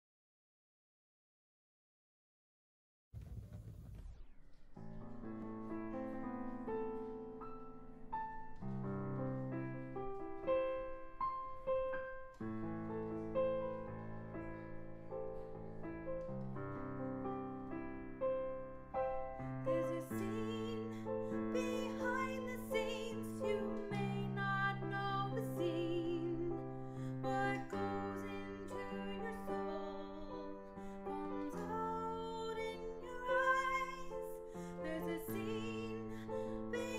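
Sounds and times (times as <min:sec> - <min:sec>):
slow piano music: 0:04.5 - 0:36.9.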